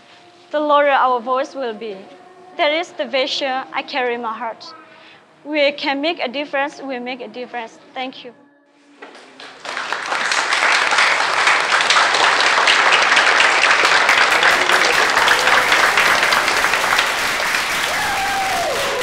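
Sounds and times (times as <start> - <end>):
audience applauding: 9.4 - 19.0.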